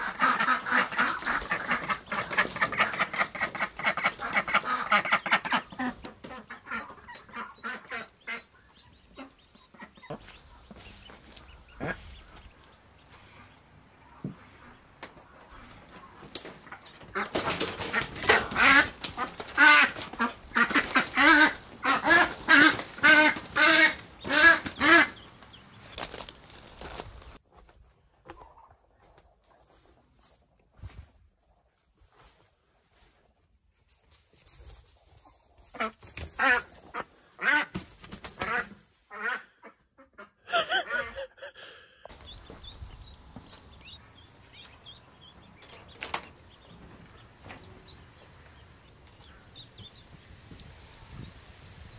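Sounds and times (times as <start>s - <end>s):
duck quacking: 0.0s - 10.3s, 11.7s - 12.4s, 16.7s - 25.3s, 35.7s - 37.8s, 38.4s - 41.5s.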